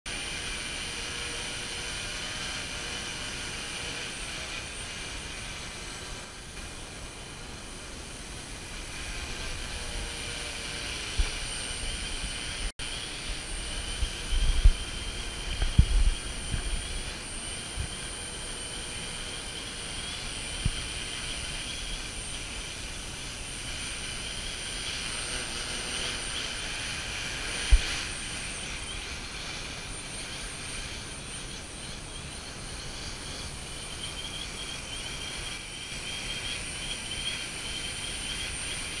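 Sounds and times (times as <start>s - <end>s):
quadcopter propellers buzzing: 0.1s - 39.0s
dull low thumps: 13.3s - 17.1s.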